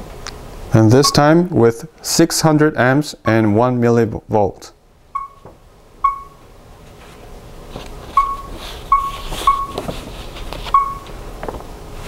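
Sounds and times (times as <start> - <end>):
touchscreen key-press beeps: 5.2 - 6.4, 8.2 - 9.8, 10.8 - 11.0.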